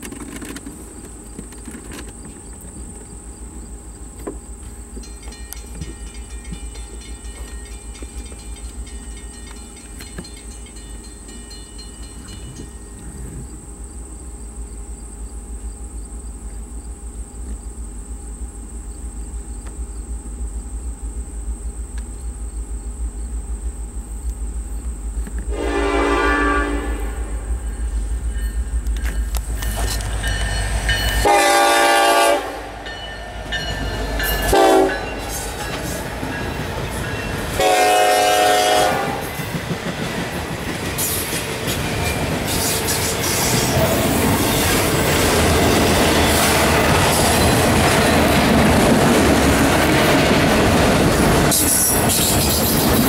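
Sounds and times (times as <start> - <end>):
wheels clicking over rail joints: 0.0 - 3.2, 4.1 - 13.4, 27.8 - 31.3, 32.8 - 37.6
crickets chirping: 0.0 - 53.0
locomotive multi-chime horn: 25.5 - 39.3.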